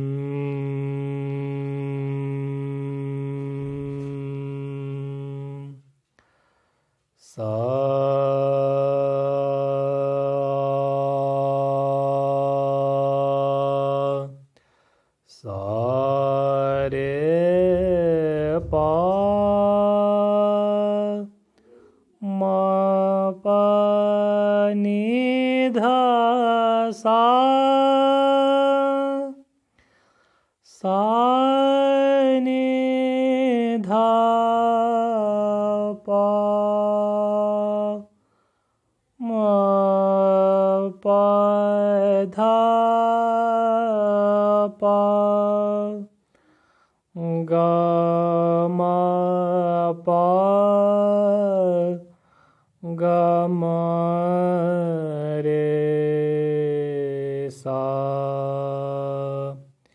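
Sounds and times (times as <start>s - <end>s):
man singing long held notes: 0.0s - 5.8s, 15.3s - 29.5s, 52.8s - 59.7s
man singing unaccompanied: 0.0s - 5.9s, 7.3s - 14.5s, 15.3s - 21.4s, 22.2s - 29.5s, 30.7s - 38.2s, 39.2s - 46.2s, 47.2s - 52.2s, 52.8s - 59.7s.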